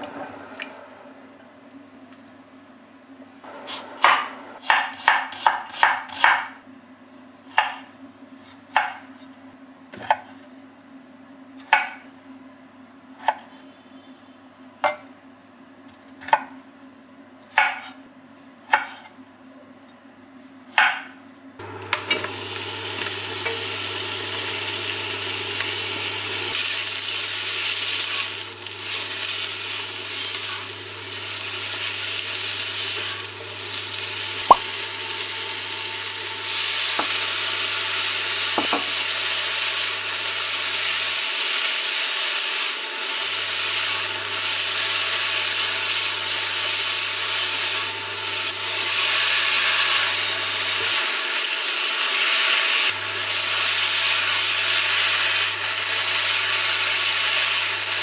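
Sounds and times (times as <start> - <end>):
knife chopping on cutting board: 3.6 - 6.6, 7.5 - 9.1, 17.5 - 18.0, 18.7 - 19.1, 38.6 - 39.0
food sizzling in oiled pan: 21.6 - 58.0.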